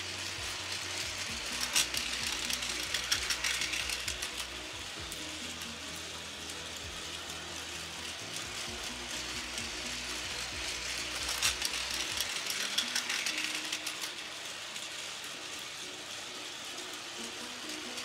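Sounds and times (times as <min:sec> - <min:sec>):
toy train motor whirring: 0:00.0 - 0:18.0
wheels clicking on plastic track: 0:00.0 - 0:18.0.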